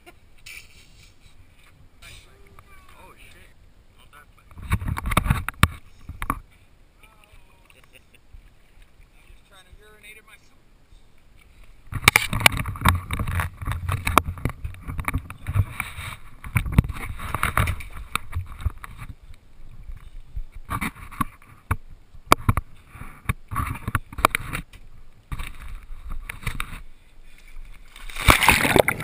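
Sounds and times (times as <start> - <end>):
camera handling knocks and rubbing: 4.5 - 6.5, 11.9 - 19.2.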